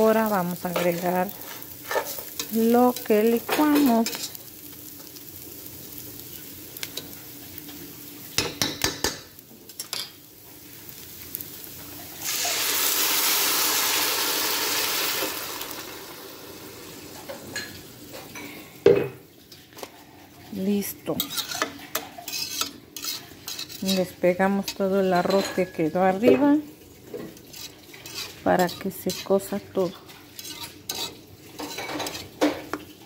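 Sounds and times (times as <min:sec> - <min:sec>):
rice sizzling in a hot pan: 0:00.0 - 0:33.0
liquid poured into hot pan hissing: 0:11.9 - 0:17.2
metal spoon clinking on pan: 0:21.2 - 0:24.0, 0:24.7 - 0:25.9, 0:30.4 - 0:32.2.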